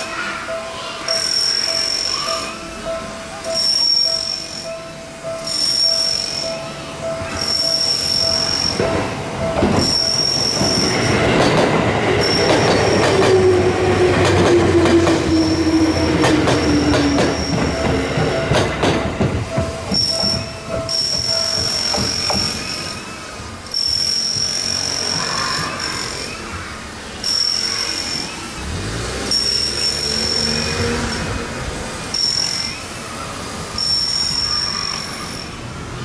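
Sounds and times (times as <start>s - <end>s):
railroad crossing bell ringing: 0.0s - 26.6s, 27.2s - 28.6s, 29.2s - 35.8s
train wheels clattering: 7.3s - 23.0s.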